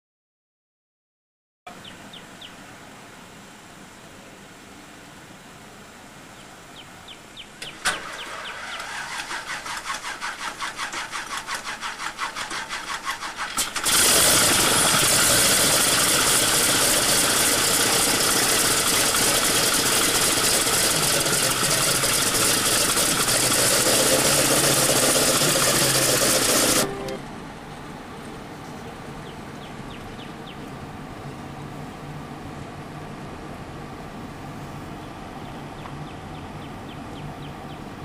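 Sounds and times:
radial engine turning over: 7.6 - 27.3
aircraft engine running: 7.7 - 31.5.

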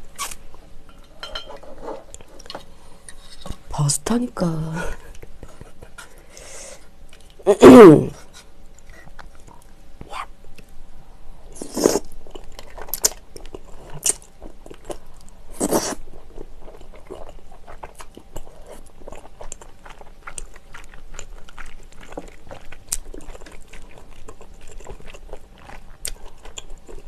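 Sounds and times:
wet chewing with mouth clicks: 11.6 - 27.0.

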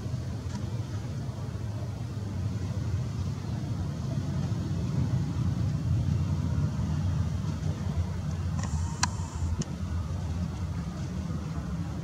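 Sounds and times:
low aircraft rumble: 0.0 - 12.0
brief hiss: 8.6 - 9.6.

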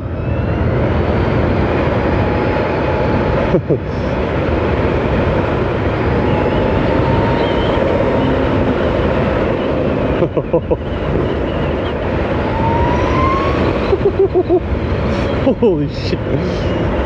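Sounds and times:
wind rushing over a microphone: 0.0 - 17.0
electric motor whine: 5.4 - 10.0, 11.2 - 15.4.

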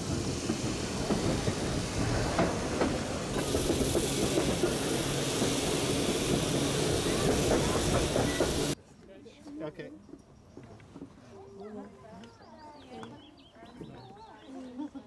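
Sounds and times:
bright hiss: 0.0 - 8.8
tram wheels rumbling on rail: 0.0 - 8.8.

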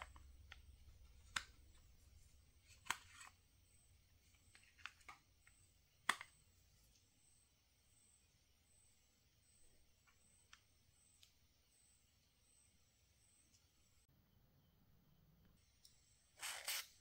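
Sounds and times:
plastic clicks and taps: 4.5 - 6.3.

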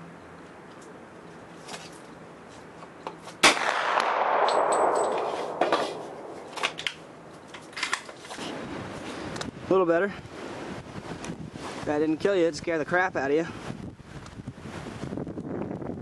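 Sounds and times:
gunshot with echo: 3.4 - 6.8.

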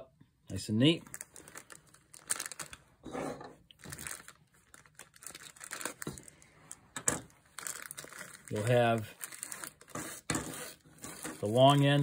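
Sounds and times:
plastic bag crinkling: 1.0 - 2.9, 3.7 - 10.3.

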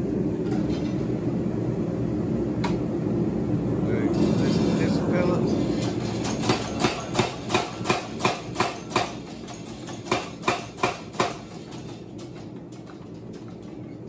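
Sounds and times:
power hammer striking steel: 5.7 - 13.7.

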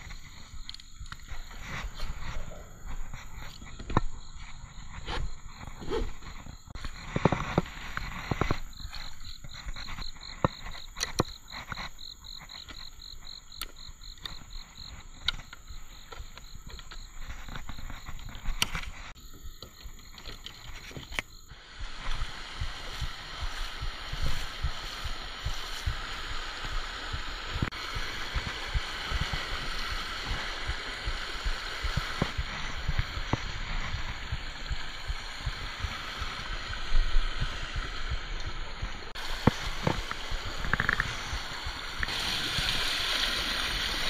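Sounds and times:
buckle clicks and scrapes: 16.7 - 19.2
creek water rushing over rocks: 21.5 - 44.0.

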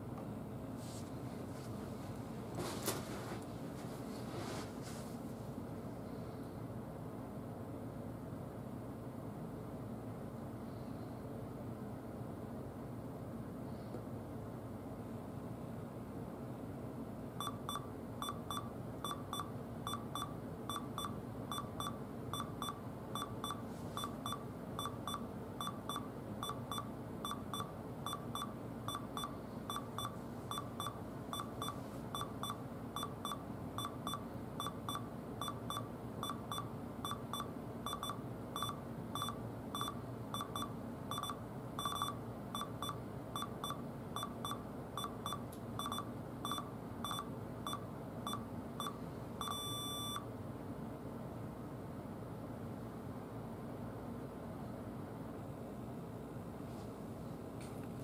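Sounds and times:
laptop beeping: 17.4 - 50.2.

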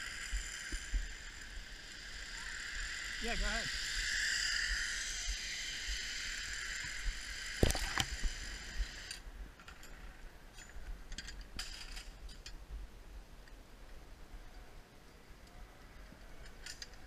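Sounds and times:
high whirring: 0.0 - 9.2
metallic clicks of carabiners: 16.4 - 17.0.

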